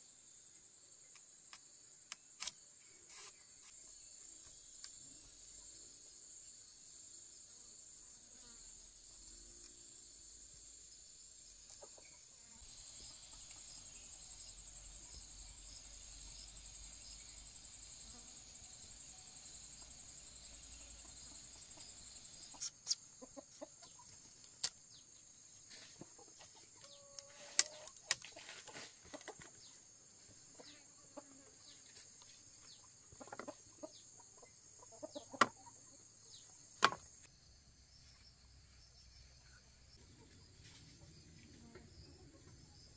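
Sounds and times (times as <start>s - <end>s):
high drone of insects: 0.0s - 42.9s
chickens clucking: 21.0s - 24.3s, 25.8s - 29.8s, 32.6s - 36.5s.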